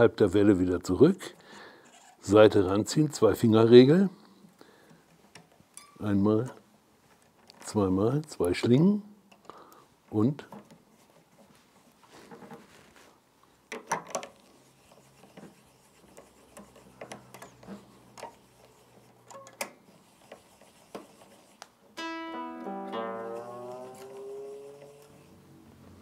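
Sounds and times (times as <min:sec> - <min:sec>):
clicks and rubbing of string: 0:13.8 - 0:21.8
guitar string rising in pitch: 0:22.0 - 0:26.0.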